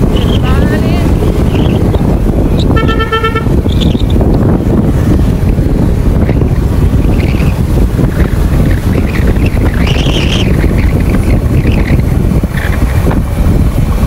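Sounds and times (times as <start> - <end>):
wind buffeting microphone: 0.0 - 14.0
vehicle horn: 2.7 - 3.7.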